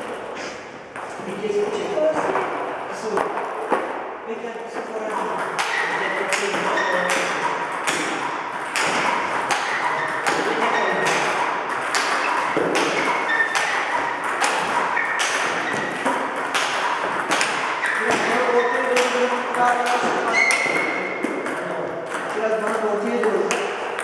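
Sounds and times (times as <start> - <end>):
table tennis ball bouncing: 0.9 - 4.1, 4.8 - 24.0
paddles striking ball: 5.1 - 24.0.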